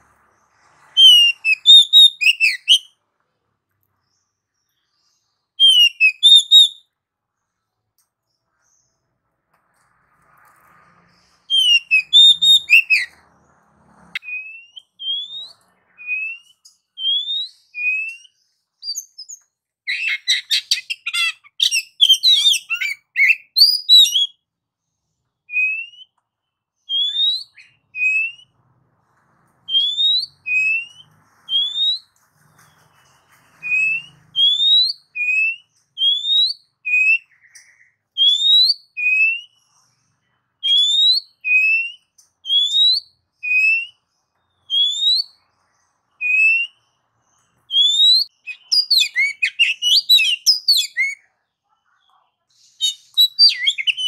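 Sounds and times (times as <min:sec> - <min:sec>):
bird whistles: 0:00.8 - 0:02.9, 0:05.6 - 0:06.8, 0:11.4 - 0:13.2, 0:14.2 - 0:24.4, 0:25.5 - 0:26.2, 0:26.9 - 0:28.6, 0:29.7 - 0:39.6, 0:40.6 - 0:45.4, 0:46.2 - 0:46.9, 0:47.7 - 0:51.2, 0:52.8 - 0:54.0.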